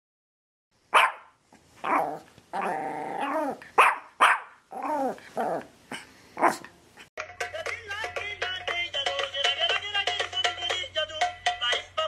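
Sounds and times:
dog barking: 0.9 - 4.6, 6.4 - 6.7.

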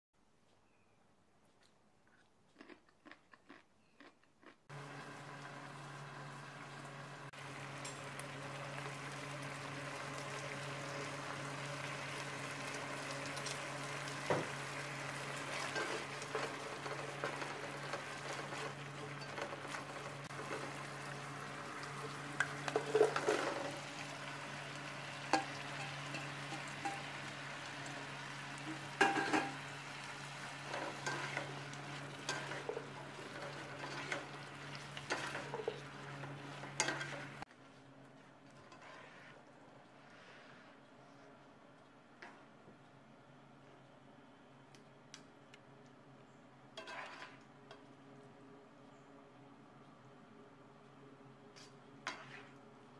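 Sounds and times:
food sizzling in hot oil: 4.7 - 37.4
spatula scraping and tapping pot: 46.8 - 47.8, 51.6 - 52.6.

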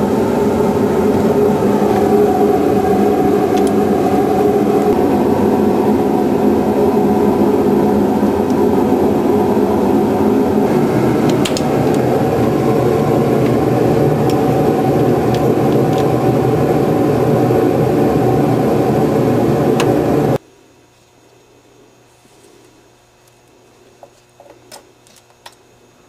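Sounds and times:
loud mechanical whir: 0.0 - 20.4
low hum: 0.0 - 20.4.

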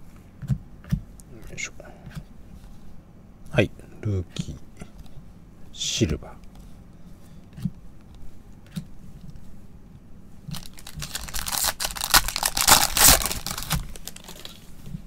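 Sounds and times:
card handling: 10.5 - 14.6
wrapper crinkling and tearing: 10.5 - 14.7.

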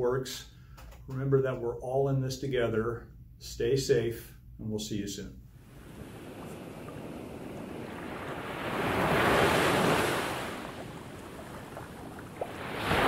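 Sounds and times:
ocean surf rush: 5.6 - 13.0.

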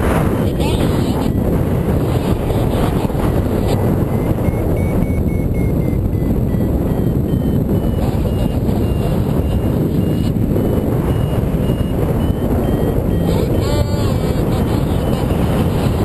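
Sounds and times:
wind buffeting microphone: 0.0 - 16.0
variometer beeps: 0.2 - 16.0.

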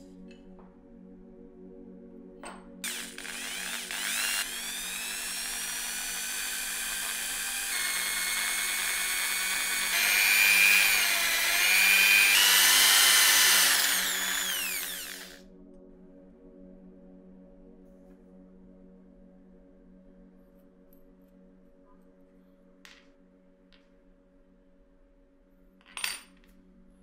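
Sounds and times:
quiet background music: 0.0 - 27.0
electric drill boring into wood: 2.8 - 15.4.

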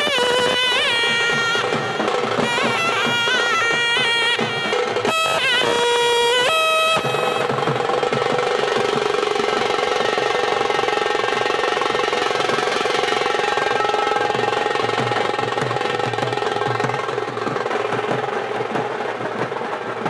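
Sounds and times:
wind instrument holding a note: 0.0 - 7.7, 13.3 - 14.7
fast folk drumming: 0.0 - 20.0.

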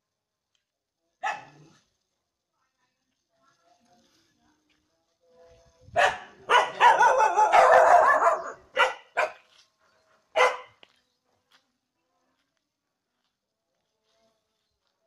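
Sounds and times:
dog barking: 1.2 - 1.8, 6.0 - 9.5, 10.3 - 10.8.

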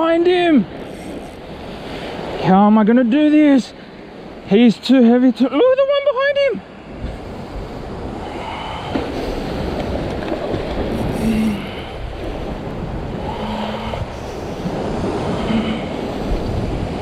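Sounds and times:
wind buffeting microphone: 6.7 - 17.0
surf breaking on rocks: 8.9 - 17.0.

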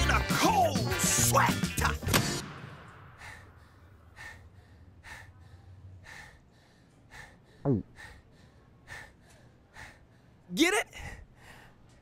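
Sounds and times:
person gasping: 3.1 - 10.3, 11.0 - 11.8.

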